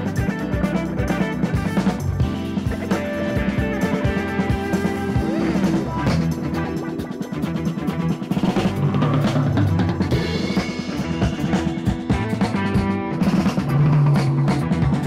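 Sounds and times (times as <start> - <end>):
drum-kit beat: 0.0 - 15.0
held instrumental notes: 0.0 - 15.0.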